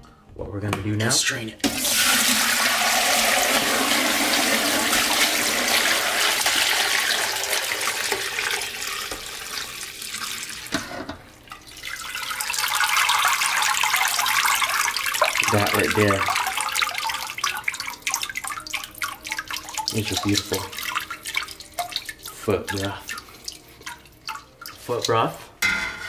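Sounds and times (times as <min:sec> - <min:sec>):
broth pouring through strainer: 0:11.6 - 0:25.1.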